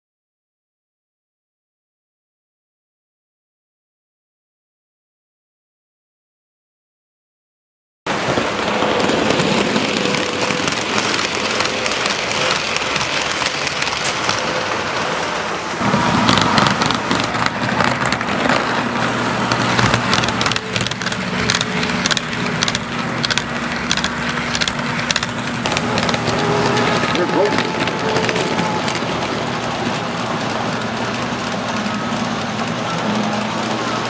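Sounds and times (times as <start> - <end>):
toy train wheels clattering: 9.0 - 15.1, 16.2 - 34.0.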